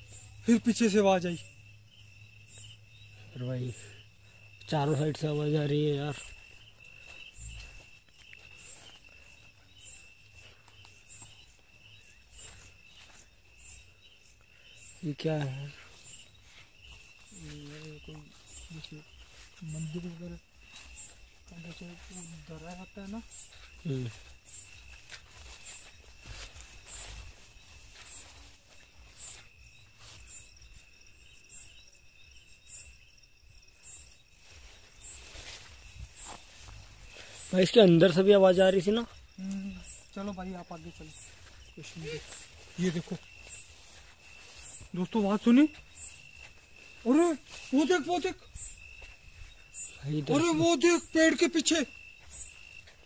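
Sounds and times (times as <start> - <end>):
cricket trill: 0.0 - 53.0
insect chirping: 0.0 - 53.0
soft rustles: 23.3 - 30.9, 34.3 - 37.6, 41.0 - 47.8.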